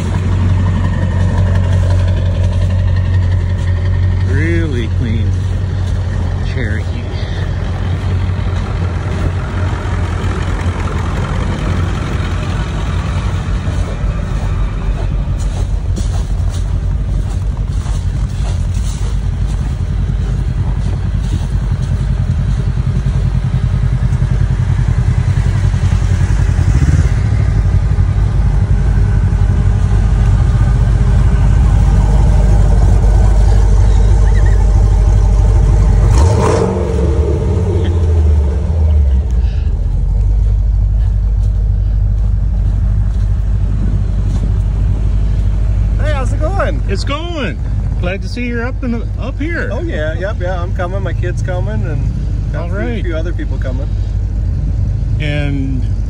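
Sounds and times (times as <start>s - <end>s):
engines idling: 0.0s - 56.0s.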